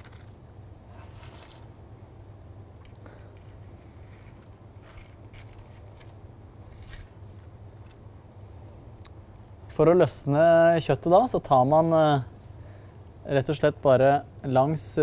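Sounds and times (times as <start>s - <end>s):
steady low hum: 0.0s - 15.0s
metal spatula scraping salt crust: 0.9s - 1.7s.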